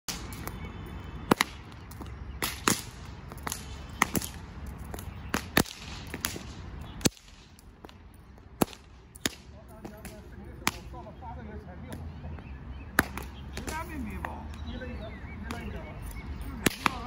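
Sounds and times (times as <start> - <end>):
whips cracking: 1.3 - 8.0, 8.6 - 11.0, 13.0 - 13.9, 16.6 - 17.0.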